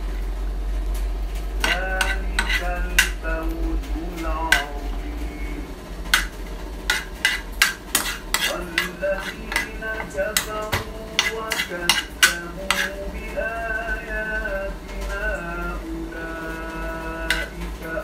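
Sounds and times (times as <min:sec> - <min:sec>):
butter sizzling: 0:01.4 - 0:03.3, 0:04.3 - 0:15.6, 0:16.3 - 0:18.0
metal spoon scraping frying pan: 0:01.6 - 0:03.2, 0:04.5 - 0:04.8, 0:06.1 - 0:13.0, 0:17.3 - 0:17.6.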